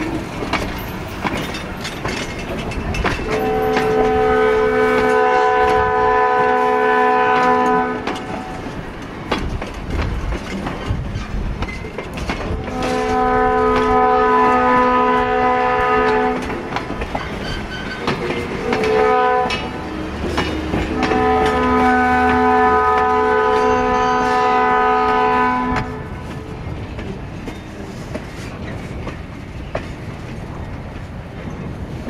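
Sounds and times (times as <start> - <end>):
train wheels clicking over rail joints: 0.0 - 32.0
locomotive horn blasts: 3.2 - 8.6, 12.6 - 16.6, 18.6 - 19.8, 20.8 - 26.3.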